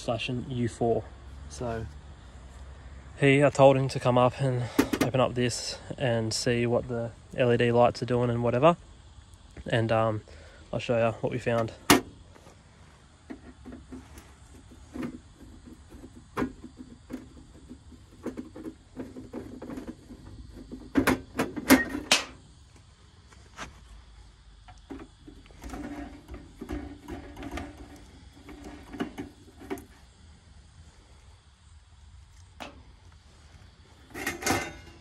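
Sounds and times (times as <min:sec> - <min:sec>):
metal-on-metal scraping: 0:24.9 - 0:29.9, 0:34.0 - 0:35.0.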